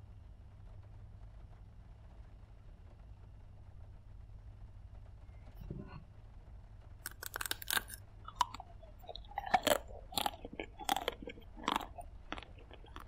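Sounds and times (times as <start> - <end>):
chewing: 7.0 - 13.0
chocolate shell crunching: 7.0 - 13.0.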